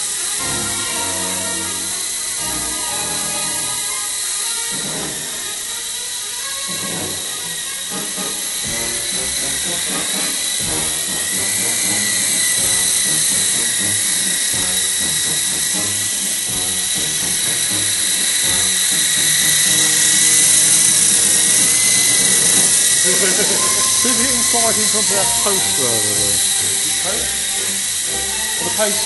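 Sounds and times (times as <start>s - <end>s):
toy helicopter motors whining: 0.0s - 29.0s.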